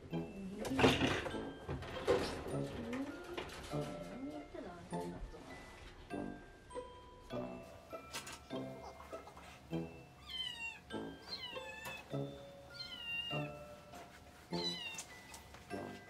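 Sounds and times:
kitten meowing: 10.2s - 12.1s, 12.7s - 13.5s, 14.5s - 15.3s.

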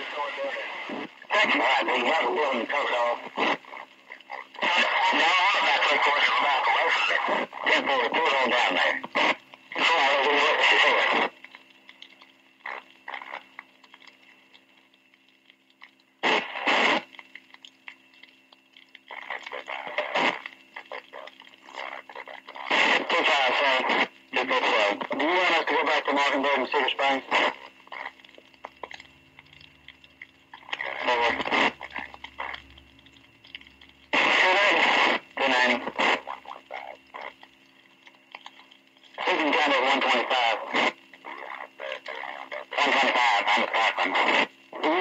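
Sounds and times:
burst of radio noise: 0.0s - 11.4s, 16.2s - 17.2s, 19.1s - 28.9s, 30.6s - 32.7s, 34.1s - 37.4s, 39.2s - 45.0s
faint crackles and clicks: 0.0s - 45.0s
steady low hum: 0.0s - 45.0s.

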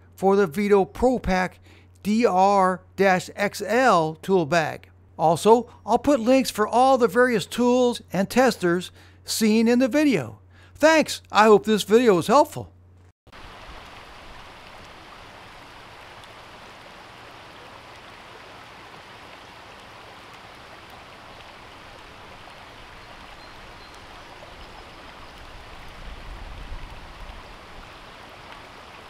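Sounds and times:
stream running over rocks: 13.3s - 29.0s.

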